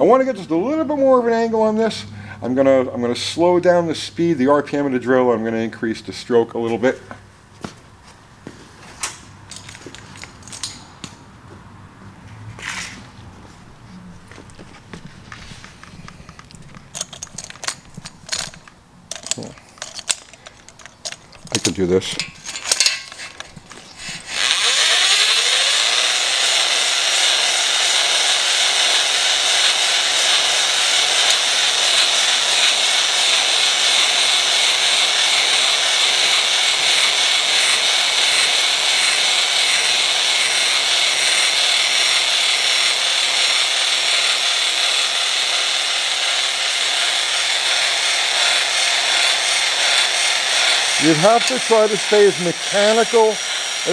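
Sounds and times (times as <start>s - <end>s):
honing stones grinding metal: 16.9s - 53.9s
electric drill motor whine: 23.0s - 53.9s.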